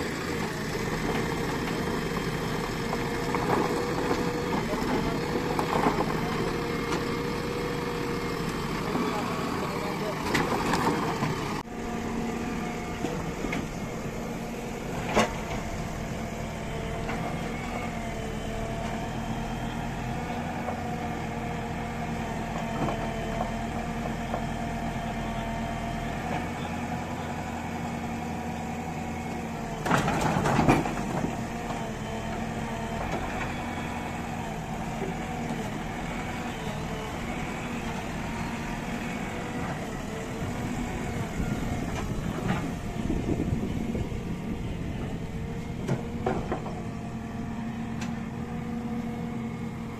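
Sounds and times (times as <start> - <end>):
diesel engine running at low revs: 0.0 - 49.9.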